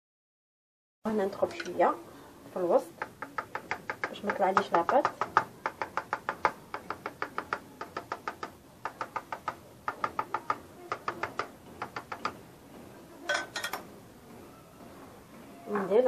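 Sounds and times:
fork tapping on metal tray: 2.9s - 12.4s.

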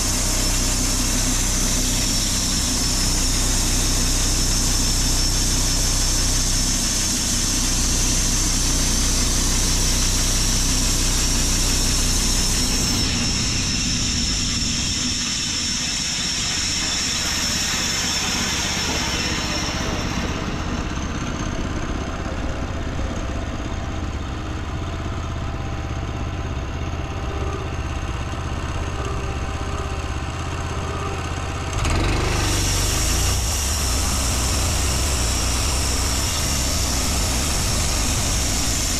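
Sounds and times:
sawmill engine running: 0.0s - 38.9s
high hiss: 32.5s - 38.9s.

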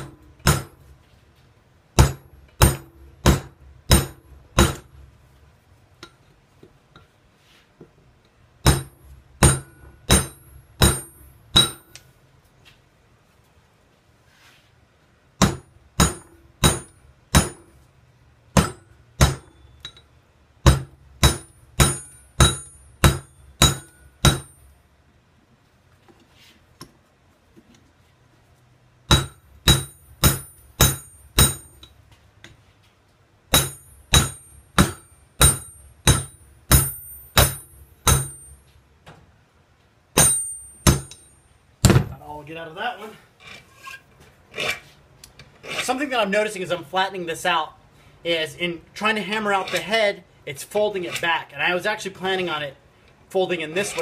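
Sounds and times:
hammer ringing on hot metal: 8.6s - 12.0s, 15.4s - 17.8s, 20.7s - 24.8s, 29.1s - 32.0s, 33.5s - 38.7s, 40.2s - 42.2s.

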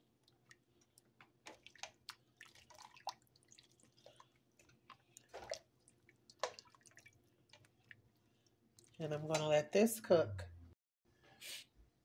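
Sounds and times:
spoon stirring soup in a pot: 0.1s - 9.5s.

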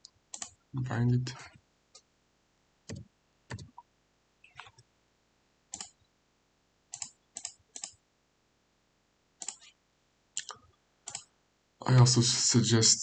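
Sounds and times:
computer mouse clicking: 0.3s - 0.6s, 2.9s - 3.8s, 5.7s - 6.0s, 6.9s - 8.0s, 9.4s - 9.7s, 11.1s - 11.3s.

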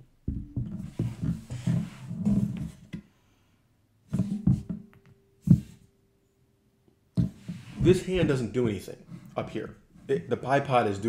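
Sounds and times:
rifle knocking and rubbing on table: 7.2s - 8.3s.

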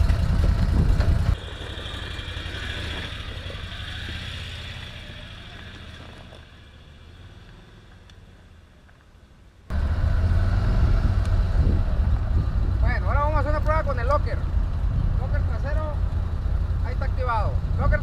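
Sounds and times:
engine running: 0.0s - 8.2s.

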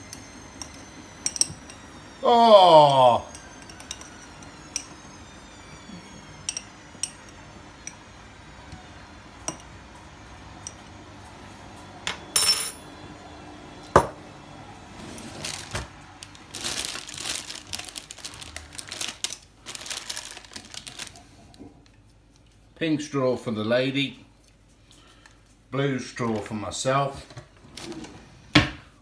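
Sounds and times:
crinkly rustling: 15.1s - 22.6s.

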